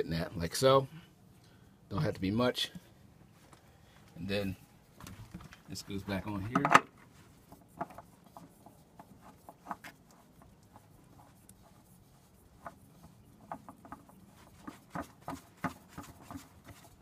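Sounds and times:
fuel filter rubbing and clicking: 4.9 - 17.0.

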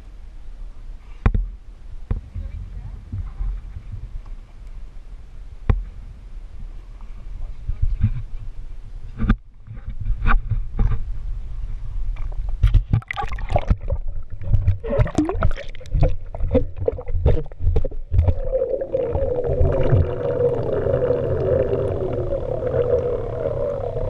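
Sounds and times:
water splashing and gurgling: 12.7 - 24.0
muffled underwater drone: 16.2 - 24.0.

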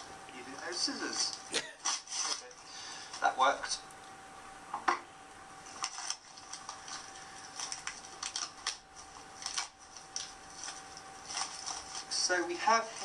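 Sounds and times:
packaging crinkling: 0.6 - 3.3, 5.7 - 13.0.

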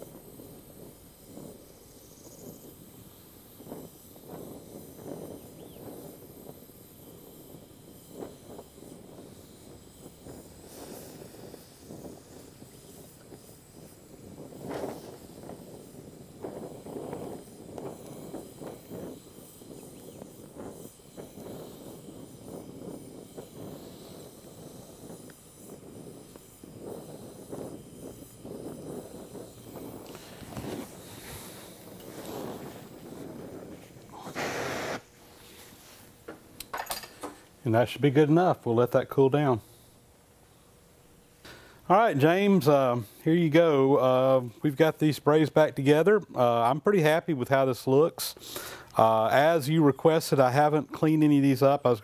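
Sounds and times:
gas torch flame hissing: 0.0 - 52.0.

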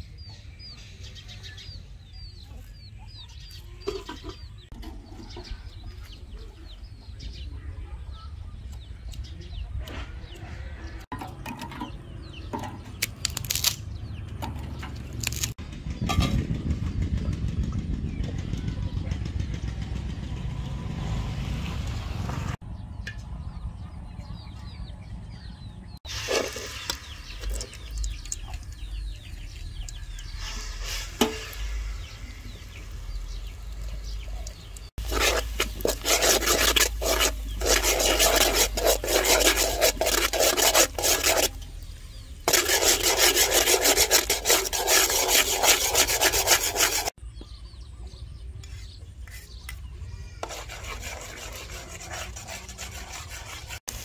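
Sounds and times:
fast rhythmic scraping: 34.9 - 41.7, 42.4 - 47.2, 50.4 - 54.0
paste sizzling in hot oil: 35.0 - 41.7, 42.5 - 47.1.

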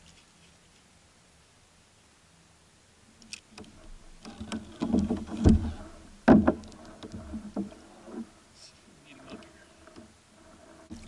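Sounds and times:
knocks on plastic kayak hull: 4.9 - 6.6.

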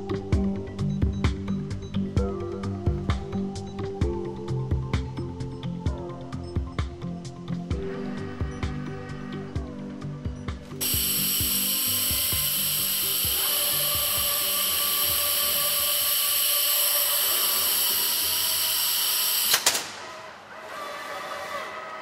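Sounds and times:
background music: 0.0 - 22.0
buzzing mechanical whine: 9.8 - 22.0
sharp machine clicks: 10.8 - 20.3.

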